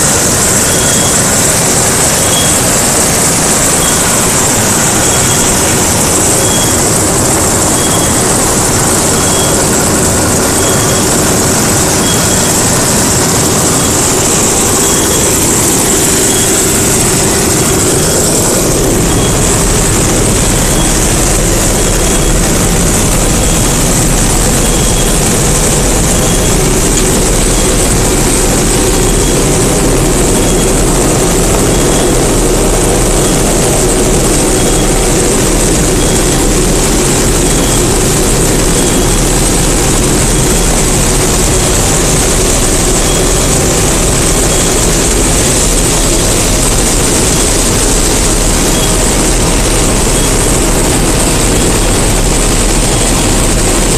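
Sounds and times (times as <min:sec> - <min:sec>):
combine harvester mechanical drone: 0:00.0 - 0:53.9
faint high beep: 0:00.6 - 0:01.6, 0:02.2 - 0:07.0, 0:07.7 - 0:33.6.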